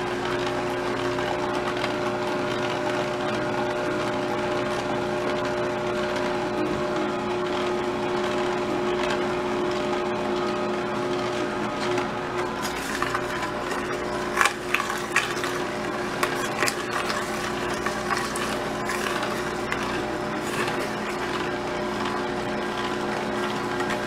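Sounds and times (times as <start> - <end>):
juicer motor humming: 0.0 - 24.0
fruit cracking and crunching: 12.5 - 22.1.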